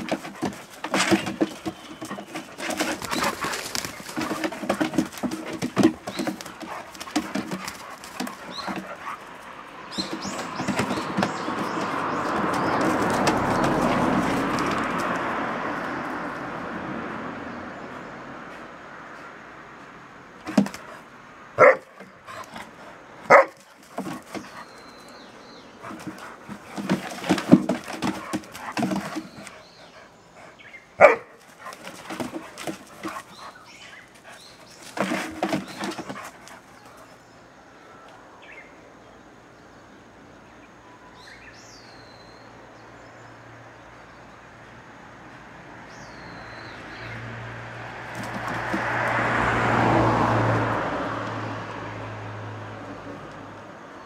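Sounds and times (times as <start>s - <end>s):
dogs barking: 0.0s - 14.3s, 21.6s - 24.8s, 25.7s - 37.1s
dogs growling: 0.0s - 15.0s.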